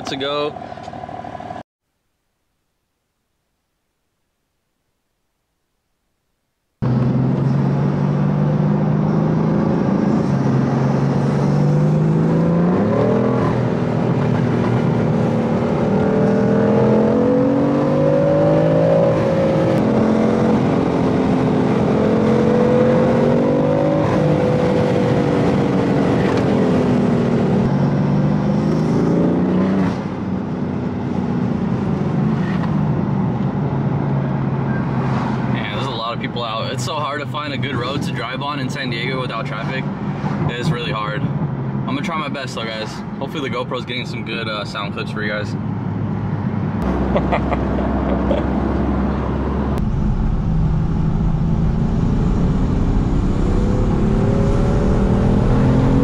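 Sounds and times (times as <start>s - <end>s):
car engine drone from cabin: 45.7s - 56.0s.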